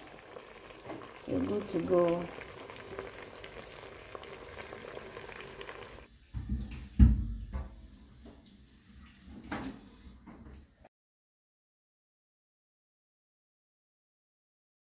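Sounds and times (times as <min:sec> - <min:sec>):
meat sizzling in a pan: 0:00.0 - 0:06.1.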